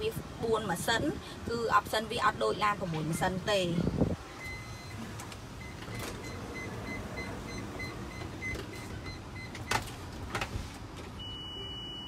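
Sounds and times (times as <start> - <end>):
low hum inside minivan: 0.0 - 12.0
faint high beep: 4.4 - 5.0, 11.2 - 12.0.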